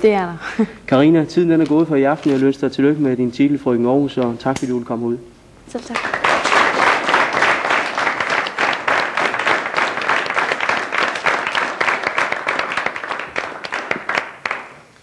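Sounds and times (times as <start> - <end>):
studio audience applauding: 5.9 - 14.8.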